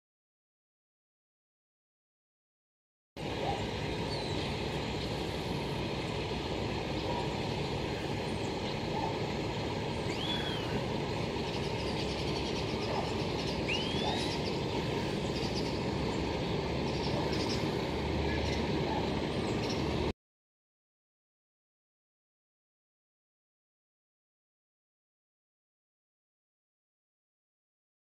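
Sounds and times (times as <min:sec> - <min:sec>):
diesel truck engine running: 0:03.2 - 0:20.1
bird chirps: 0:03.4 - 0:05.7, 0:06.9 - 0:20.1.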